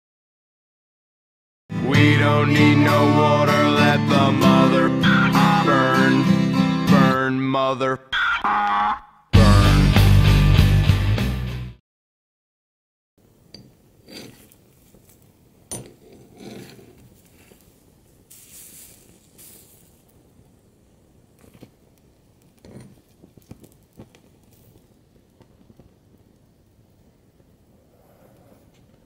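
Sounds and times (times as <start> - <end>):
burning plastic crackling: 13.9 - 29.0
hissing: 16.6 - 29.0.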